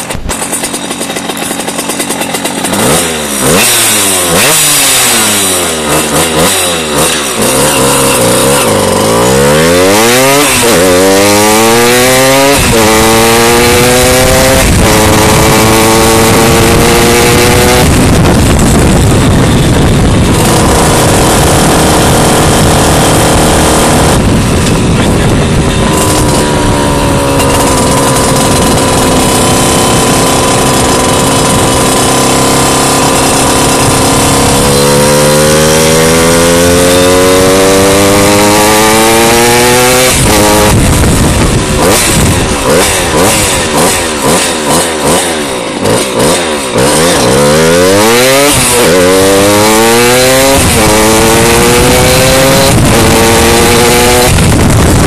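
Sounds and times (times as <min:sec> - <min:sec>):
two-stroke moped engine revving: 0:00.0 - 0:55.0.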